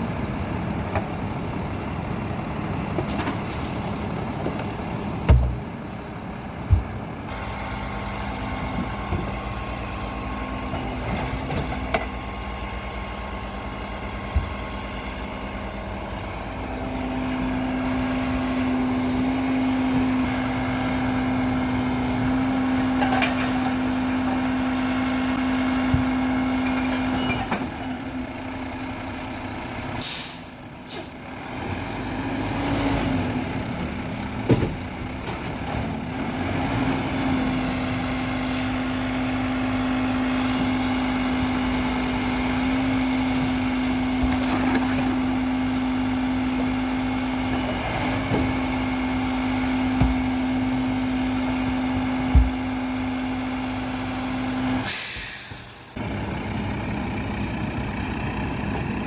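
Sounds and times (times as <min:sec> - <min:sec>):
garbage truck droning: 0:00.0 - 0:59.0
air brakes hissing: 0:30.0 - 0:31.2, 0:54.8 - 0:56.0.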